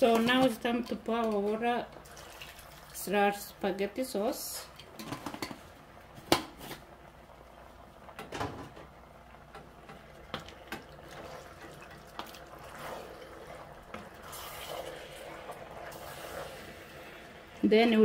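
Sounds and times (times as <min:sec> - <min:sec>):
stew squelching while stirred: 0:11.0 - 0:16.8.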